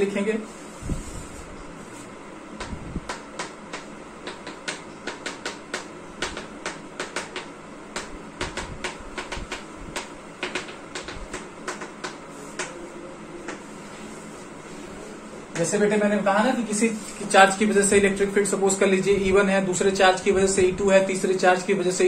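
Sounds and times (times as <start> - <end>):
chalk tapping on chalkboard: 2.6 - 12.8.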